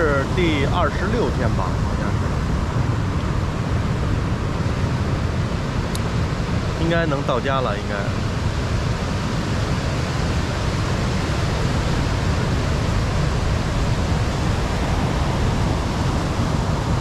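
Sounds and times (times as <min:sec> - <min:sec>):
ocean surf breaking: 0:08.1 - 0:17.0.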